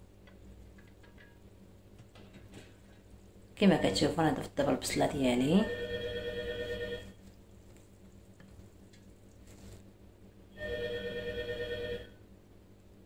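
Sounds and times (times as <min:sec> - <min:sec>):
telephone ringing: 0:05.6 - 0:07.2, 0:10.6 - 0:12.2.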